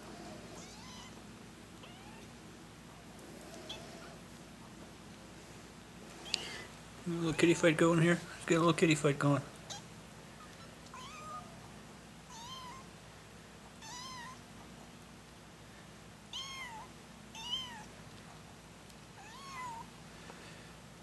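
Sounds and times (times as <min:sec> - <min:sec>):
kitten mewing: 0:01.8 - 0:02.3.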